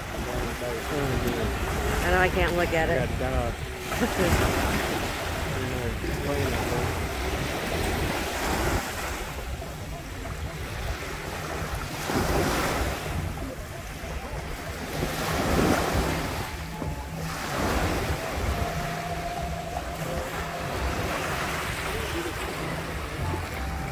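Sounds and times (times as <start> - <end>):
waves lapping on beach: 0.0 - 23.9.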